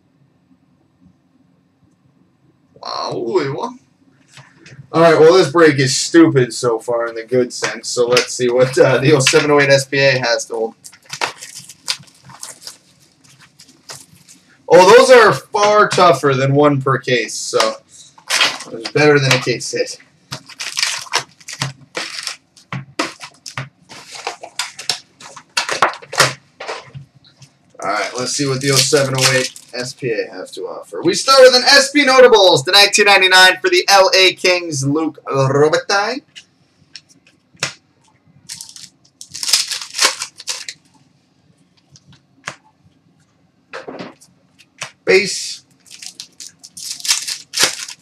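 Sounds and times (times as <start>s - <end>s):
card packs crinkling: 7.6s - 16.2s, 17.6s - 27.0s, 27.8s - 30.2s, 38.5s - 40.9s, 44.6s - 48.0s.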